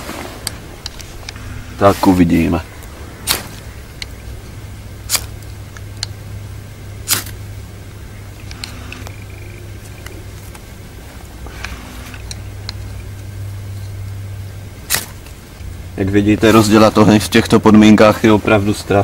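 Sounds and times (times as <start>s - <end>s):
faint scraping: 0.0s - 5.9s, 8.3s - 14.0s
knife striking firesteel: 3.2s - 3.6s, 5.1s - 5.4s, 7.0s - 7.4s, 14.9s - 15.2s.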